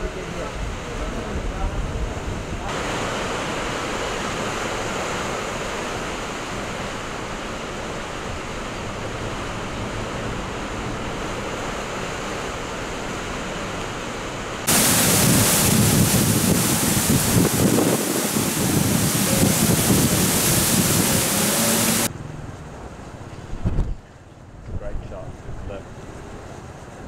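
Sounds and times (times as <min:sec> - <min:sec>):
torrential rain: 0:00.0 - 0:22.1
strong wind: 0:00.0 - 0:27.0
wind buffeting microphone: 0:14.6 - 0:22.1, 0:23.4 - 0:24.0.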